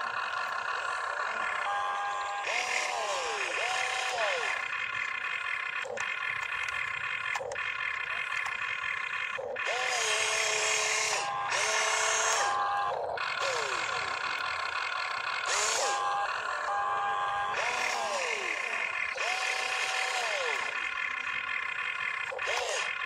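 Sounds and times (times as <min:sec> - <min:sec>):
electric motors whining: 0:00.0 - 0:23.0.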